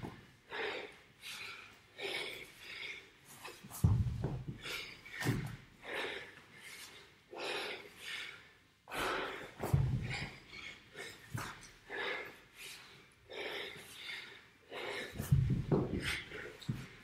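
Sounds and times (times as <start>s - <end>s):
man breathing hard: 0.0s - 17.0s
heavy thuds on wooden floor: 3.8s - 4.6s, 9.6s - 10.3s, 15.2s - 16.9s.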